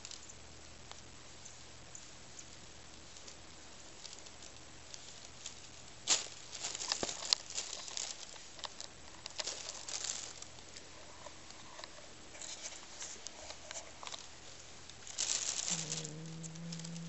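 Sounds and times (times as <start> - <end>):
plastic bag crinkling: 6.2 - 10.7, 14.9 - 17.0.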